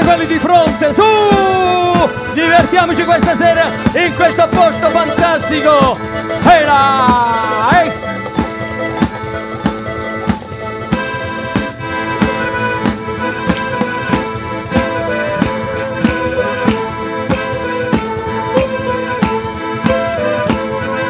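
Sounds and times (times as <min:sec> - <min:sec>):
accordion tones: 0:00.0 - 0:21.0
steady drum beat: 0:00.0 - 0:21.0.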